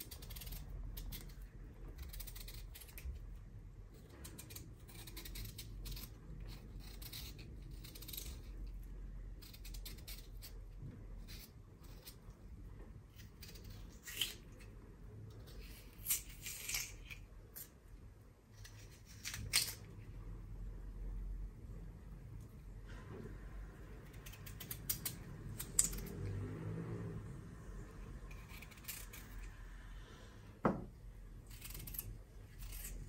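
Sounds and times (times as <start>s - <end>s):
knife scraping potato skin: 0.0s - 12.5s, 13.1s - 17.8s, 18.5s - 20.0s, 24.0s - 26.3s, 28.2s - 29.6s, 31.3s - 33.0s.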